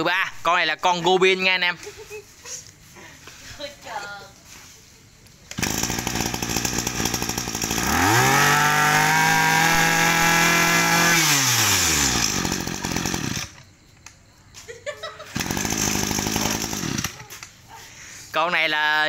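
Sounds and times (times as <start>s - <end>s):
brush cutter engine revving: 5.5s - 13.7s, 15.3s - 17.4s.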